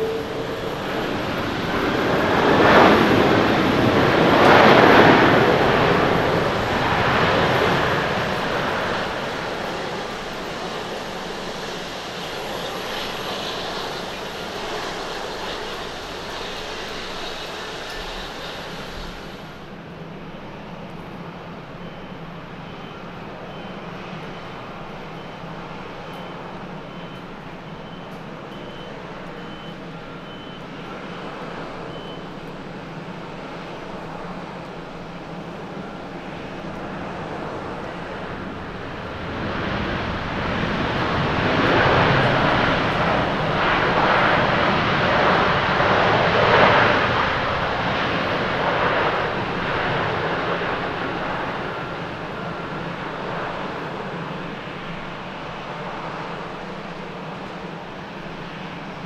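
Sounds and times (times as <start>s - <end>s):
jet engines roaring: 0.0s - 59.0s
hiss of tyre spray: 11.0s - 19.6s.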